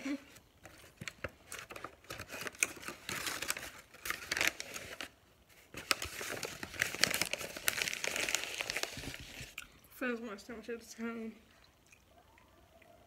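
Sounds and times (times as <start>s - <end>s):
paper wrapper crinkling: 0.6s - 9.6s.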